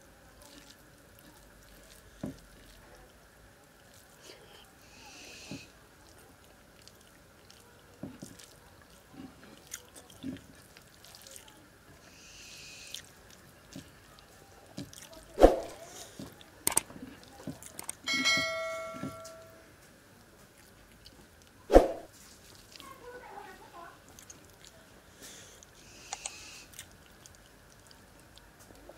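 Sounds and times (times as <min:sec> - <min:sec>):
man chewing food: 0:00.4 - 0:04.6, 0:05.2 - 0:18.1, 0:19.8 - 0:22.8, 0:24.0 - 0:28.9
fingers squishing rice: 0:04.9 - 0:17.9
bell chime: 0:18.1 - 0:19.6.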